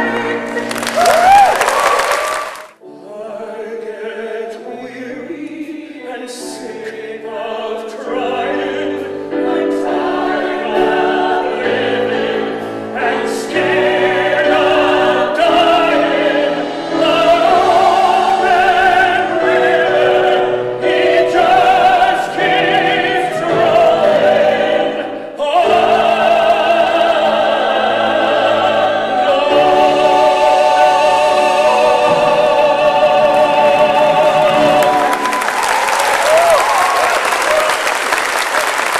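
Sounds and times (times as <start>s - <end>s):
piano and small band: 0.0s - 38.9s
man singing operatically: 3.0s - 10.0s, 17.0s - 35.2s.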